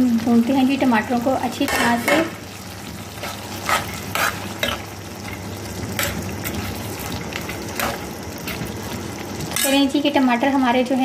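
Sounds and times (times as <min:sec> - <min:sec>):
food sizzling in hot oil: 0:00.0 - 0:11.0
metal spoon scraping a pot: 0:03.2 - 0:04.8.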